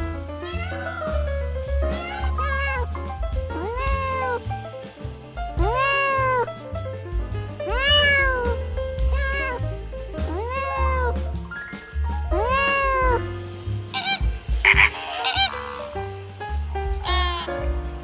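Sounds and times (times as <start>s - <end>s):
background music with bass line: 0.0s - 18.0s
cat meowing: 0.4s - 1.1s, 1.9s - 3.0s, 3.6s - 4.4s, 5.6s - 6.5s, 7.7s - 9.6s, 10.3s - 11.2s, 12.3s - 13.2s, 14.0s - 16.0s, 17.0s - 17.6s.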